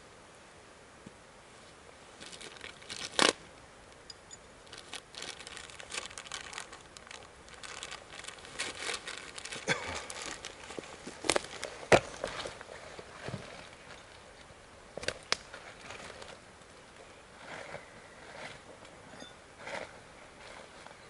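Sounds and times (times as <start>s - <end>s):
plastic bag crinkling: 2.2s - 3.4s, 4.6s - 12.6s.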